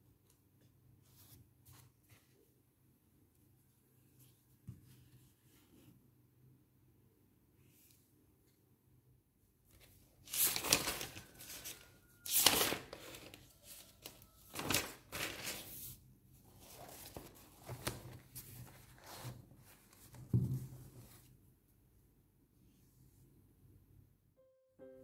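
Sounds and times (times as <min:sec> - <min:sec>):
paper pages flipping: 0:09.7 - 0:20.3.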